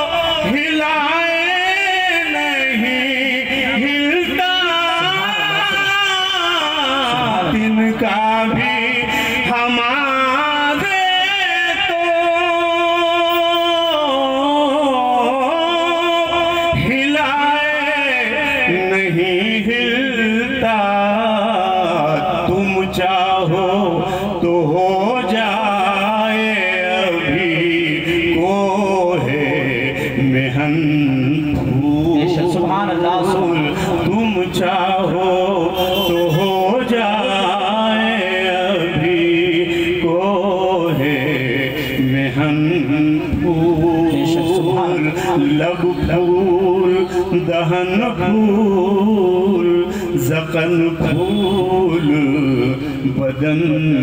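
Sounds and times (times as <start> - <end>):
man singing through microphone: 0.0 - 54.0.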